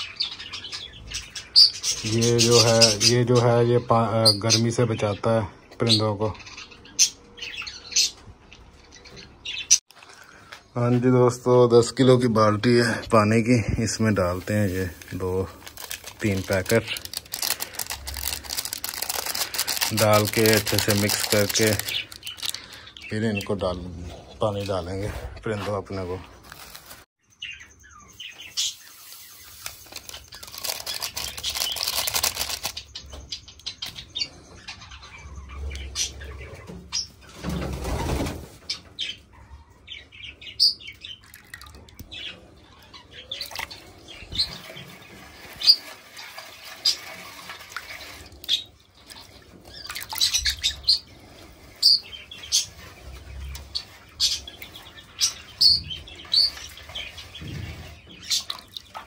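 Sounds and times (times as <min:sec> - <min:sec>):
cage birds chirping: 0:00.0 - 0:59.0
plastic packet rustling: 0:14.0 - 0:23.1, 0:26.3 - 0:27.1, 0:29.0 - 0:32.9
water sloshing in a metal bucket: 0:43.4 - 0:51.9, 0:56.2 - 0:59.0.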